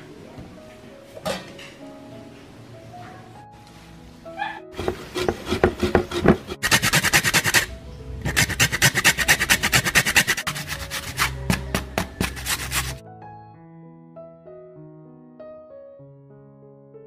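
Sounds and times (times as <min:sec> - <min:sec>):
scratchy rasping percussion beat: 0:04.8 - 0:07.7, 0:08.3 - 0:13.0.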